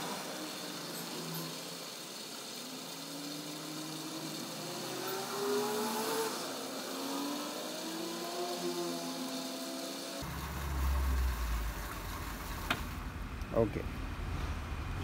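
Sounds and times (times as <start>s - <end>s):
water gushing into plastic barrel: 10.2s - 13.0s.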